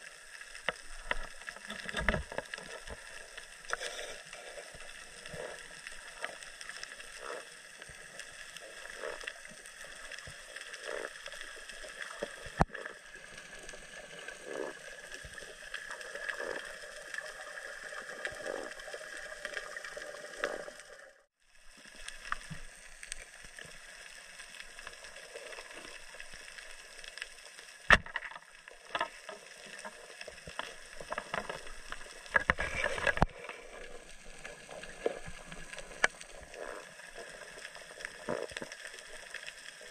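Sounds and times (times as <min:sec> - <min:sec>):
muffled underwater noise: 0:00.0 - 0:21.0.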